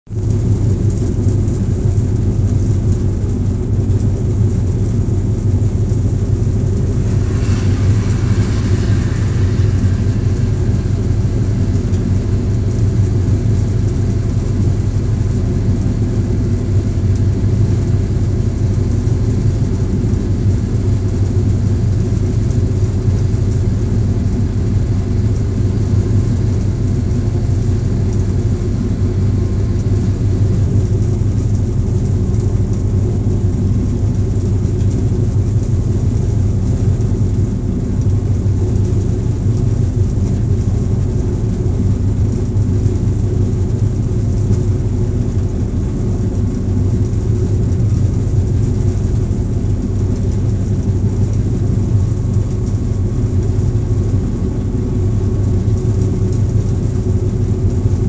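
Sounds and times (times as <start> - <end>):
diesel locomotive engine drone: 0.1 - 58.0
wheel and rail noise: 0.2 - 58.0
passing train rush: 5.6 - 17.0.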